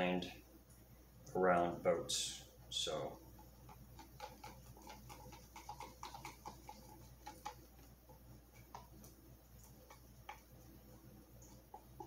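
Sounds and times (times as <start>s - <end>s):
faint small clicks and ticks: 3.2s - 12.0s.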